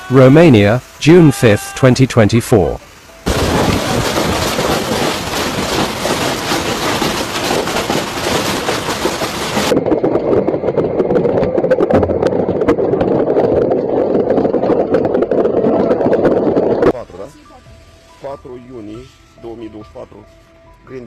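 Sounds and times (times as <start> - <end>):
hail drumming on car: 3.2 - 17.0
hailstones pelting down: 3.2 - 17.0.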